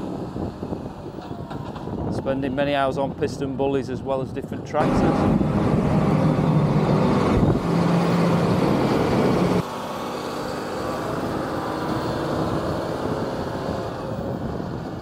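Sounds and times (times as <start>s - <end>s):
tractor diesel engine running: 4.8s - 15.0s.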